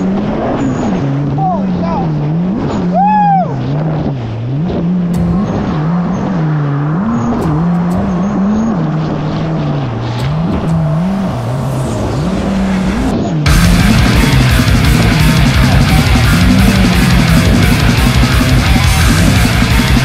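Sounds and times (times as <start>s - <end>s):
jet ski engine running hard: 0.0s - 6.3s
loud rock music: 11.8s - 20.0s.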